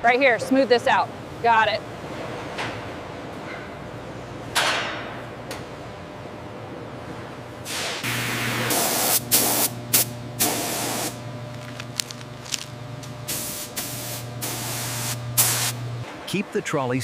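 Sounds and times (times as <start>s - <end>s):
steady low hum: 0.0s - 17.0s
spray gun hissing: 7.7s - 11.2s, 13.3s - 15.8s.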